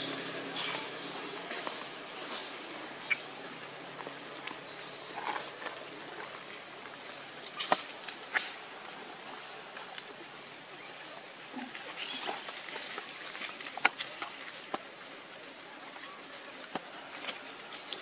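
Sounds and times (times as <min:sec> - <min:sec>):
insect drone: 0:00.0 - 0:18.0.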